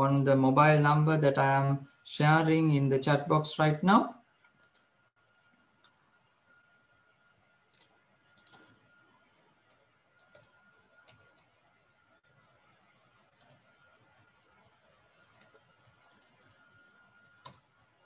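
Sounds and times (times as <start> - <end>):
computer keyboard clicks: 7.7 - 8.8, 9.7 - 11.6, 13.3 - 14.3, 15.2 - 16.7, 17.4 - 17.7.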